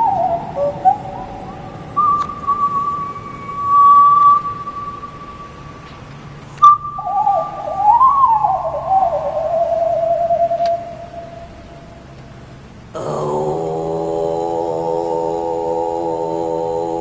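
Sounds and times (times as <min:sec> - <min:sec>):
person singing whistle-like tones: 0:00.0 - 0:05.8, 0:06.6 - 0:11.6.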